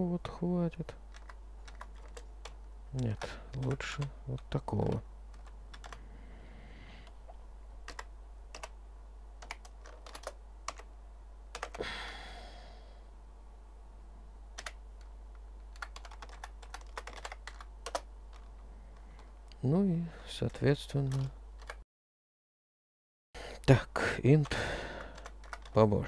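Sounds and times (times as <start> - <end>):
keyboard typing: 1.1 - 6.0, 7.8 - 8.8, 9.4 - 10.9, 11.5 - 11.8, 14.6 - 14.8, 15.6 - 18.5, 24.4 - 25.8.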